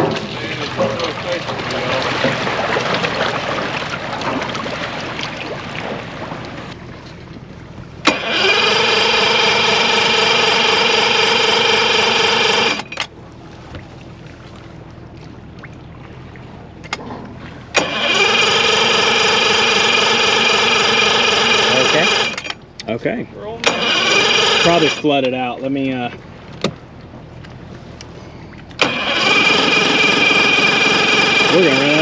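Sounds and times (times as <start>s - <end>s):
outboard motor starter cranking: 0.0s - 5.3s, 8.0s - 13.2s, 16.8s - 26.7s, 28.0s - 32.0s.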